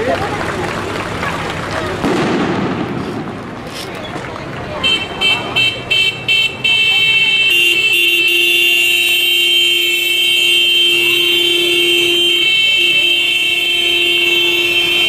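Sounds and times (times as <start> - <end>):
vehicle horns blasting: 4.8 - 15.0.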